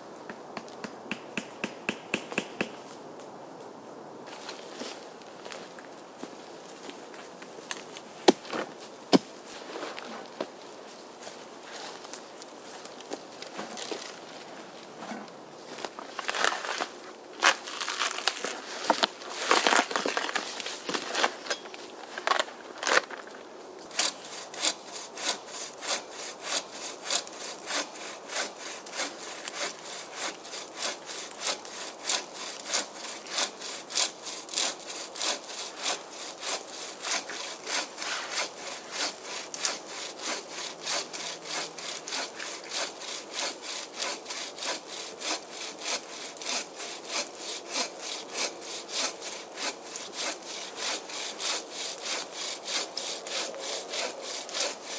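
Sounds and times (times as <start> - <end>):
hand saw cutting wood: 23.9 - 54.9.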